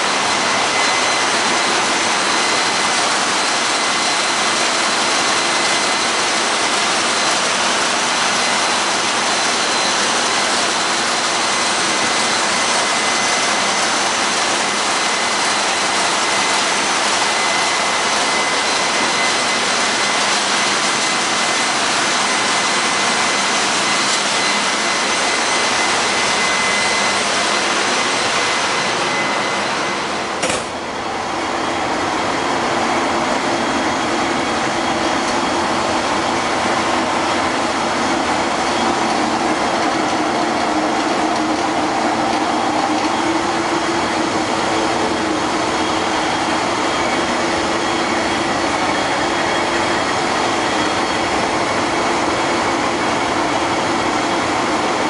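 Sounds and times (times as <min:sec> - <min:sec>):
engine room machinery din: 0:00.0 - 0:55.0
high whine: 0:00.0 - 0:55.0.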